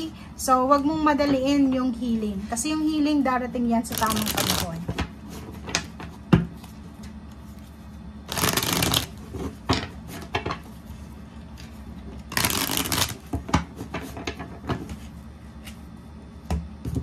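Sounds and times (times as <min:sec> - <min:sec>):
cards rippling in shuffle: 0:03.9 - 0:04.8, 0:06.6 - 0:09.6, 0:11.6 - 0:13.4.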